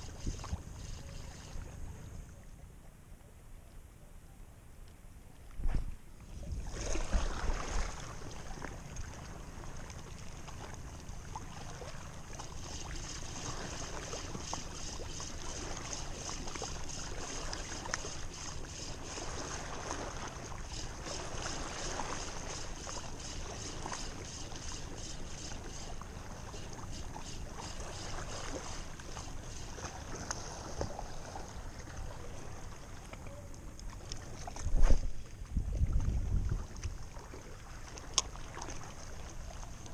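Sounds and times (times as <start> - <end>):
fishing reel whirring: 0.0 - 2.1, 12.0 - 30.7
wind and handling noise: 0.0 - 2.4, 4.7 - 8.0, 32.6 - 37.2
water lapping against rocks: 6.3 - 39.9.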